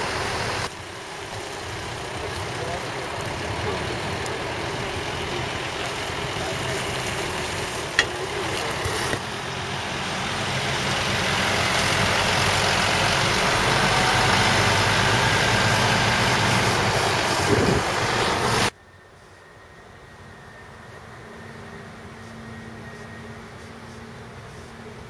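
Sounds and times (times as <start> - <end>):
truck diesel engine running: 0.0 - 18.8.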